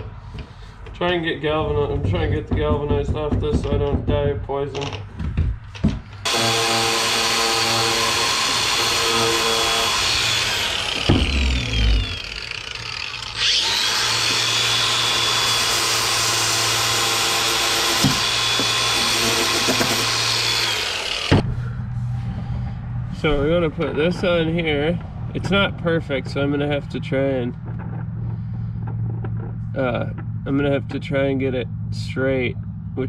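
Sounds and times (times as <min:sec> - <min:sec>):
angle grinder with wire wheel: 0:06.3 - 0:21.4.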